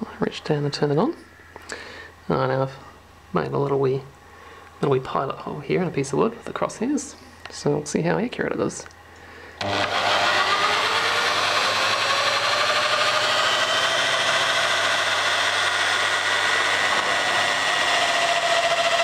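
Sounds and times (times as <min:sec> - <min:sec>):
drill bit cutting wood: 0:09.6 - 0:19.0
electric drill running: 0:09.6 - 0:19.0.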